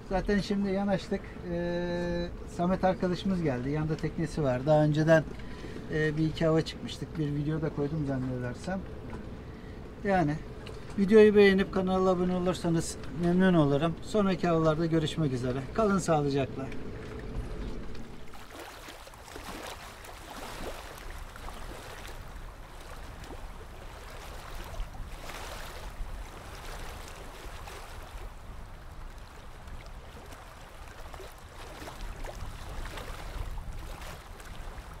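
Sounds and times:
steady low rumble: 0:00.0 - 0:18.5
water lapping against boat hull: 0:00.0 - 0:35.0.

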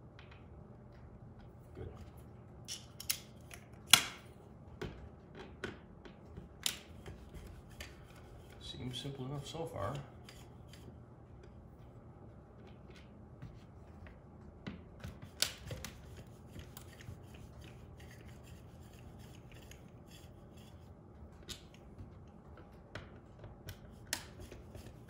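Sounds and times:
screwdriver clicking and scraping: 0:10.2 - 0:10.9, 0:15.3 - 0:20.8.

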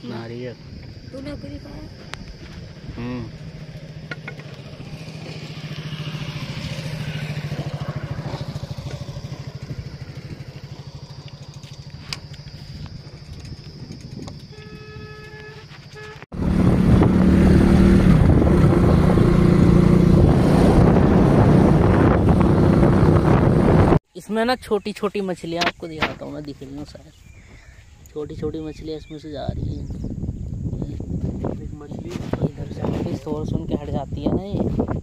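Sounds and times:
motorcycle engine running: 0:01.2 - 0:24.0
wind rushing over microphone: 0:16.3 - 0:24.0, 0:28.2 - 0:35.0.

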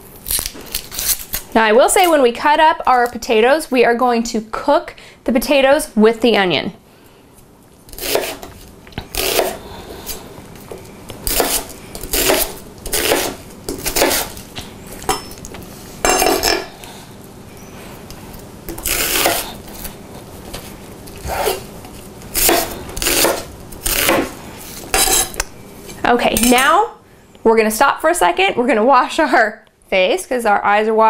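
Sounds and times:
knife chopping onion on board: 0:07.9 - 0:09.6, 0:11.3 - 0:14.3, 0:22.4 - 0:24.3.

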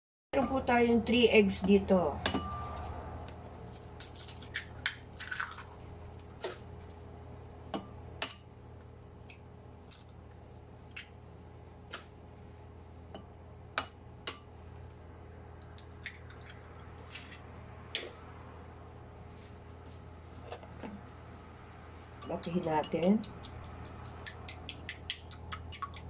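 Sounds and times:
eggshells cracking on glass bowl: 0:03.7 - 0:05.8, 0:15.6 - 0:17.4
eggs squishing into bowl: 0:22.0 - 0:26.0.

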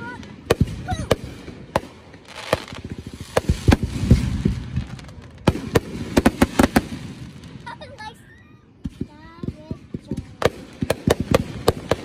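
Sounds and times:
firework bangs: 0:00.0 - 0:08.2, 0:08.8 - 0:12.0
crackling firework pops: 0:00.4 - 0:07.5, 0:08.8 - 0:12.0.

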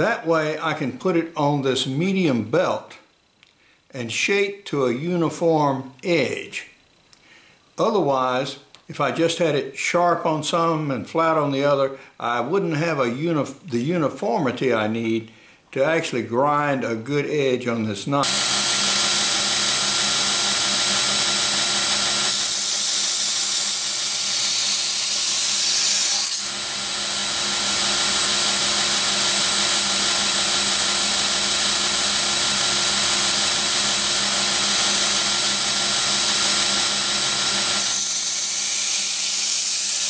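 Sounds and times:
abrasive belt grinding steel: 0:18.2 - 0:40.0
belt grinder motor hum: 0:18.2 - 0:40.0.

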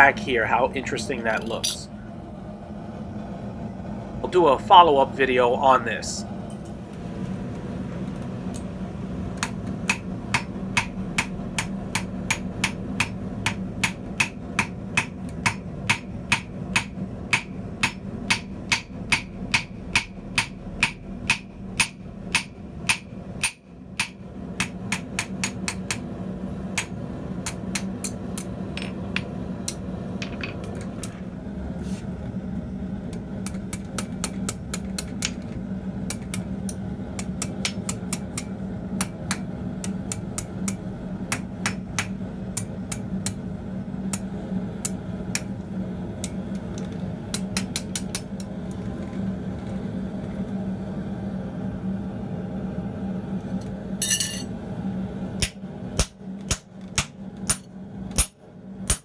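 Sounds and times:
hammer ringing on anvil: 0:54.0 - 0:54.5.

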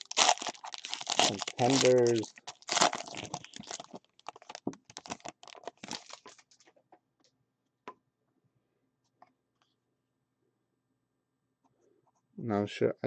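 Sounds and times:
card pack wrapper tearing crinkling: 0:00.0 - 0:06.6.

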